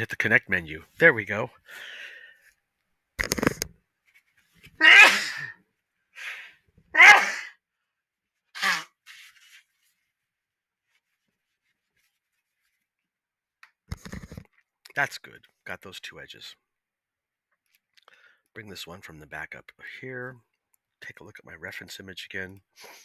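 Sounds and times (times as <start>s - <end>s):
short breaths: 1.6s - 2.6s, 6.1s - 6.7s, 18.0s - 18.5s
person sneezing: 4.8s - 5.6s, 7.0s - 7.6s, 8.6s - 9.0s.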